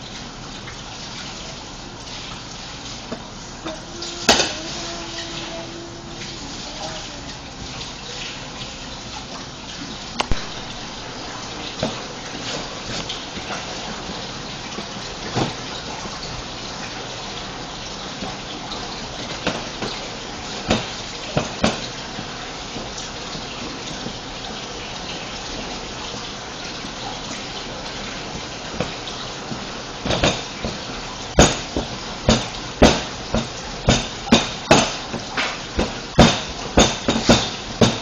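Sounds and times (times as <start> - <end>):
fondant slapped on steel worktop: 31.4 - 38.0.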